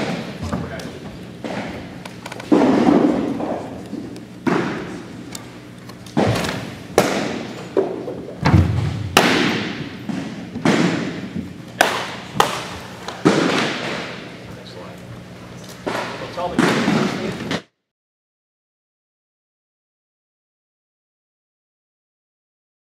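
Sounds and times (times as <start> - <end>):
baseballs smacking into mitts: 0.0 - 5.5, 6.1 - 14.4, 15.7 - 17.6.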